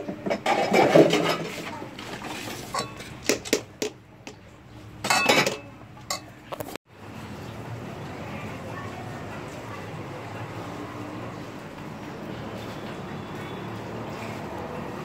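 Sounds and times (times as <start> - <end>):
spoon clinking against pot: 2.7 - 3.6, 5.1 - 6.4.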